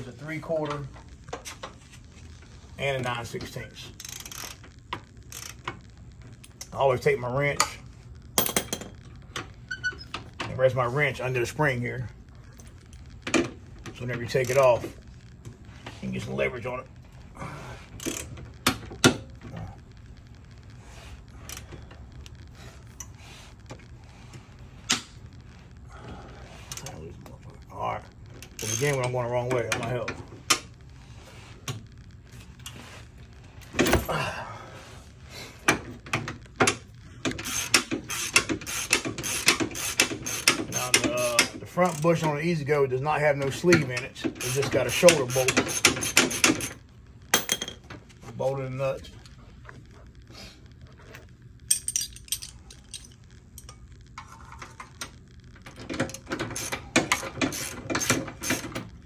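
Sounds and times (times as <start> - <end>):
ratcheting wrench clicking: 4.0 - 4.7, 5.3 - 5.7, 37.3 - 42.2, 44.4 - 46.8, 56.0 - 58.8.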